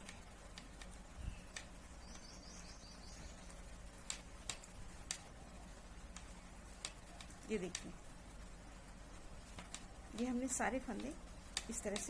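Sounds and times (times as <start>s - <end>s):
knitting needles clicking: 0.0s - 1.8s, 3.5s - 5.3s, 6.1s - 8.0s, 9.5s - 12.0s
faint low hum: 0.0s - 12.0s
bird twittering: 1.2s - 3.5s.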